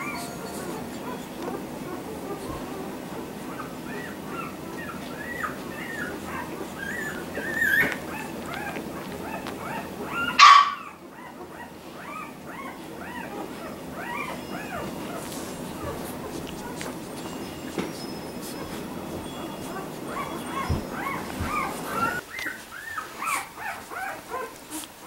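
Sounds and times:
puppy crying: 0:00.0 - 0:24.9
puppies whimpering: 0:00.0 - 0:25.0.

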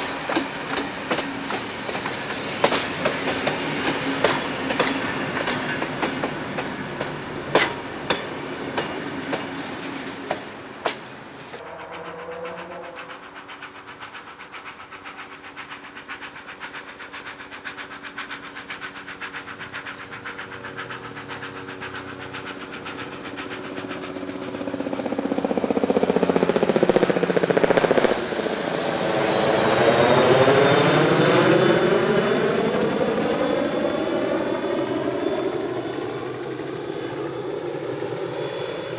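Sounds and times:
train wheels clicking over rail joints: 0:00.0 - 0:24.6
engine drone passing: 0:11.6 - 0:16.0.

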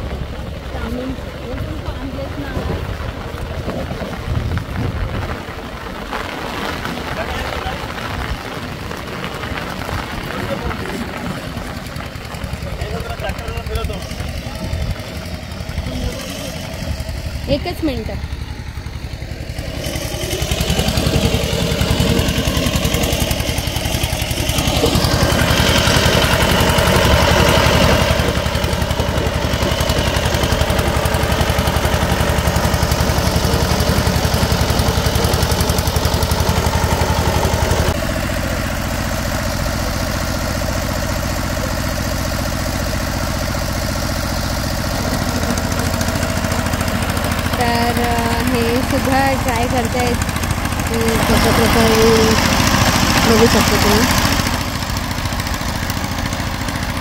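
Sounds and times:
tiller engine running: 0:00.0 - 0:57.0.

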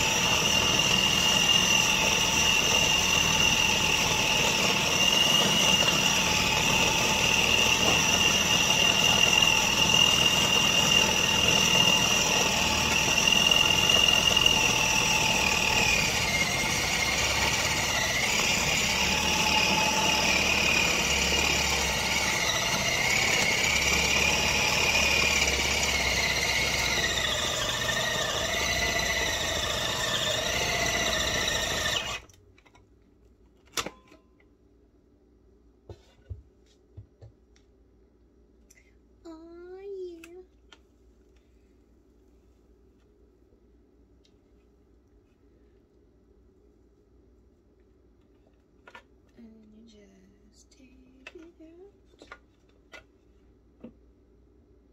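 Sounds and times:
food processor motor whining: 0:00.0 - 0:32.4.

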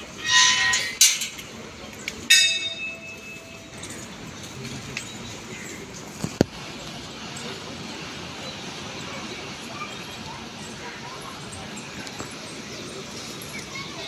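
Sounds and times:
temple bell ringing: 0:01.8 - 0:05.9.

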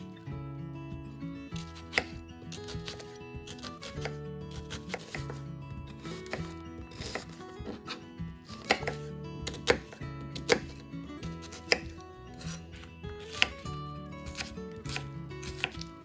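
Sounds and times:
soft background music: 0:00.0 - 0:16.0
knife chopping on wooden board: 0:01.5 - 0:16.0.

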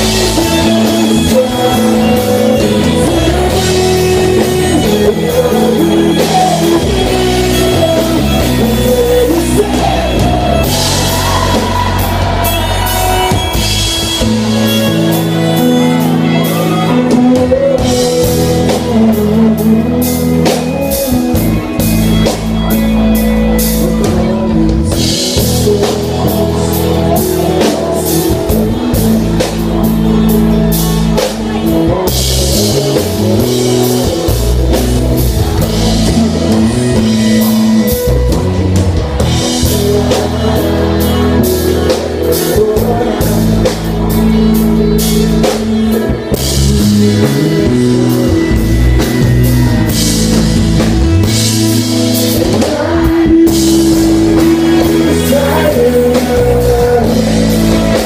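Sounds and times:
bass guitar: 0:00.0 - 0:58.0
drum kit with cymbals: 0:00.0 - 0:58.0
electric guitars: 0:00.0 - 0:58.0
person singing: 0:00.0 - 0:58.0.

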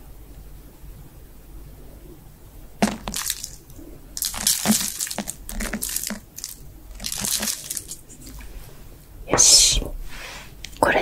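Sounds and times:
wet mouth smacking and slurping: 0:02.8 - 0:08.5.

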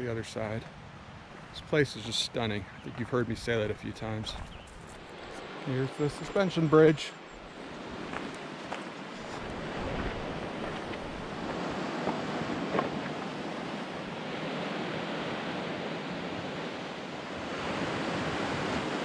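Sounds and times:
river rushing: 0:05.1 - 0:19.0.

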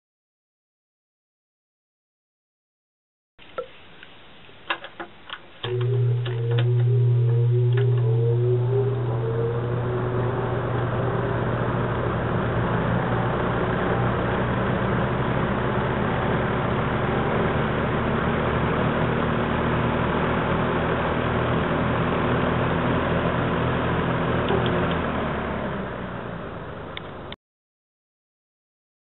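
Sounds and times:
box fan running: 0:04.7 - 0:27.3.

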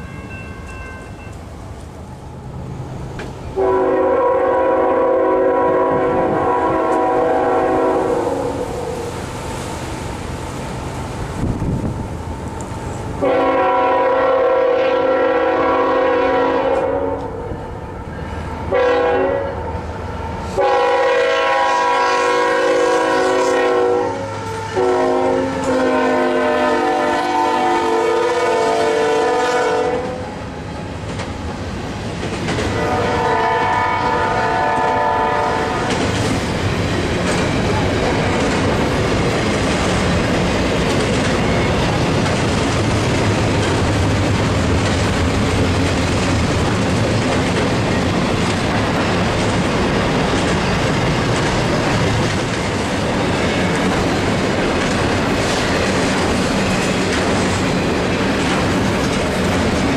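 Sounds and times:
train rumbling past: 0:00.0 - 0:59.9
locomotive air horn blasts: 0:03.6 - 0:09.2, 0:13.2 - 0:30.3, 0:32.7 - 0:35.9
wheels clacking on rail joints: 0:31.0 - 0:33.5, 0:35.8 - 0:59.9.

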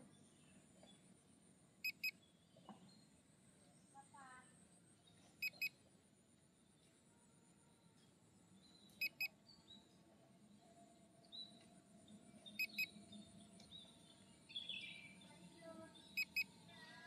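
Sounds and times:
faint bird chirps: 0:01.8 - 0:05.8, 0:07.6 - 0:17.0
electronic double beeps: 0:09.0 - 0:09.3, 0:12.6 - 0:12.9, 0:16.2 - 0:16.5.

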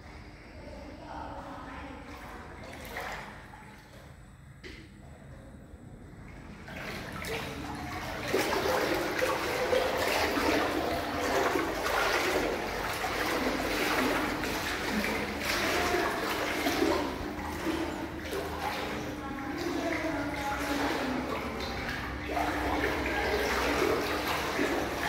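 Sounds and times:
floodwater sloshing while wading: 0:01.4 - 0:04.8, 0:06.1 - 0:25.0.

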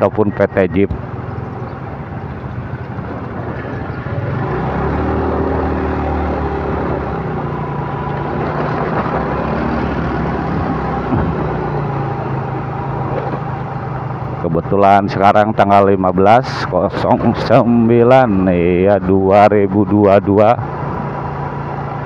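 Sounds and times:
road and wind noise: 0:00.0 - 0:22.0
motorcycle engine running: 0:00.4 - 0:14.4.

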